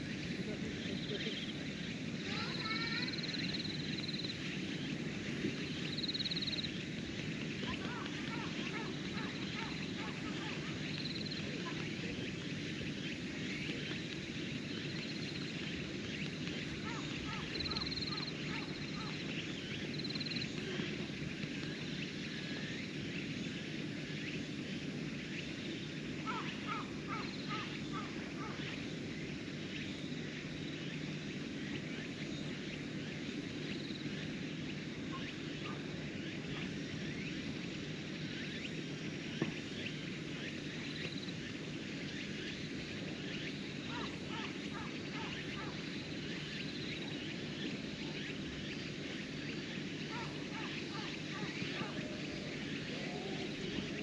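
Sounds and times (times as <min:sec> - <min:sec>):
insects chirping: 0:00.0 - 0:54.0.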